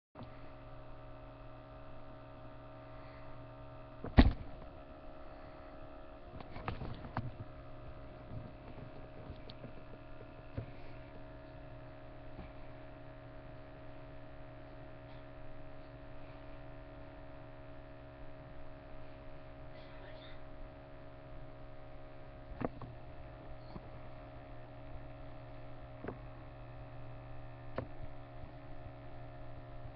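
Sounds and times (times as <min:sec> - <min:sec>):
steady electrical hum: 0:00.2 - 0:29.9
sharp knocks and clatter: 0:06.4 - 0:07.5, 0:08.2 - 0:10.8.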